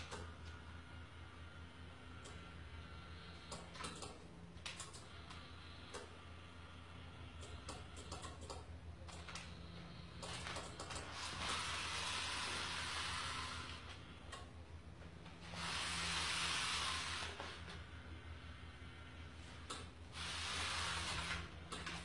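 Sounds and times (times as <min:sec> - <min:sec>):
steady low hum: 0:00.0 - 0:22.0
small motor whirring: 0:11.0 - 0:14.2, 0:15.4 - 0:22.0.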